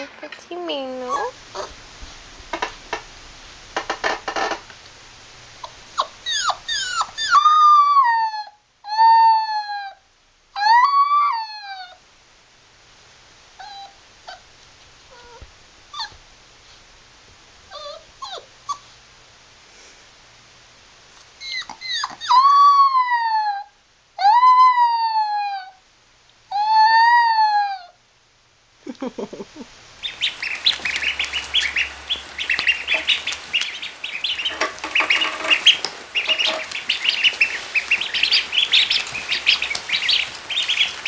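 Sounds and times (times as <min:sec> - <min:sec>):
puppy yipping and whimpering: 0:05.6 - 0:10.0, 0:10.6 - 0:12.0, 0:13.6 - 0:14.5, 0:15.1 - 0:16.2, 0:17.7 - 0:18.9, 0:21.4 - 0:25.8
puppy howling: 0:06.0 - 0:10.0, 0:10.6 - 0:12.0, 0:21.4 - 0:25.8, 0:26.5 - 0:27.9.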